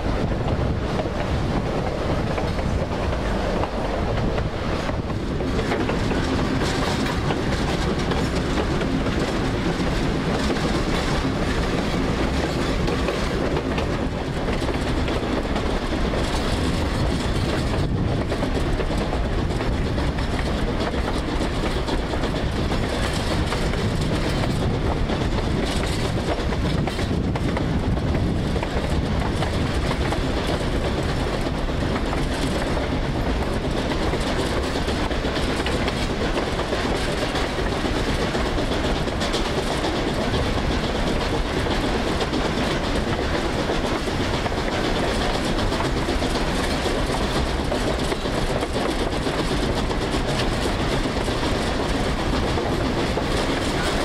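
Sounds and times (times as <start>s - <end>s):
train wheels rolling on rails: 0.0s - 54.0s.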